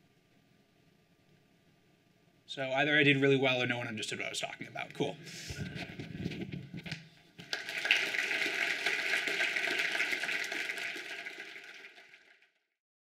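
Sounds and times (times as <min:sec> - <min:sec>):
audience applauding: 0:07.4 - 0:12.5.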